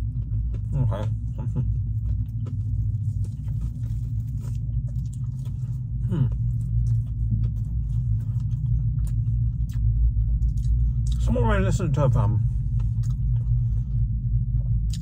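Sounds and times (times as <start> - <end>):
person chewing fried food: 0.0 - 11.4, 12.0 - 15.0
car interior hum: 0.0 - 15.0
person humming mm: 6.0 - 6.4.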